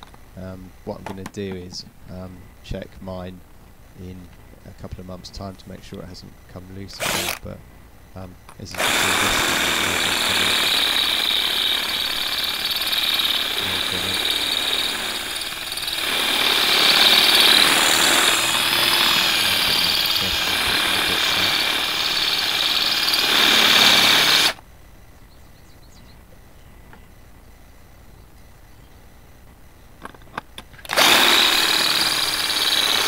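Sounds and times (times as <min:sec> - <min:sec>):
cordless drill drilling metal: 0:07.0 - 0:07.5, 0:08.6 - 0:24.6, 0:30.8 - 0:33.0.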